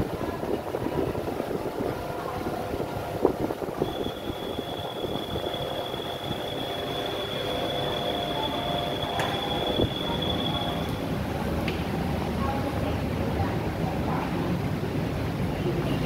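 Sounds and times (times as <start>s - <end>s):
wind on microphone: 0.0s - 6.7s
ferry engine rumble: 0.0s - 16.0s
thin high whine: 3.8s - 11.3s.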